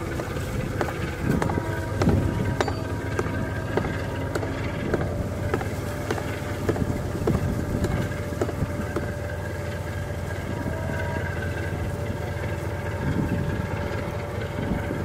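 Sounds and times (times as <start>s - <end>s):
locomotive engine drone: 0.0s - 15.0s.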